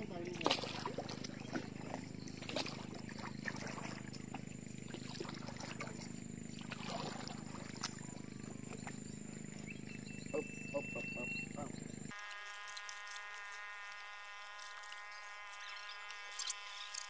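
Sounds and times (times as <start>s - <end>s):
steady low hum: 0.0s - 17.0s
paddle splashing in water: 0.2s - 9.0s.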